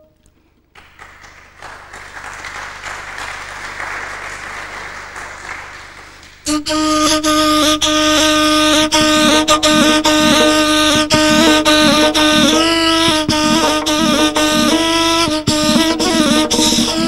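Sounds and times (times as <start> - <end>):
audience applauding: 0.7 - 6.6
hand drum strokes: 9.0 - 17.0.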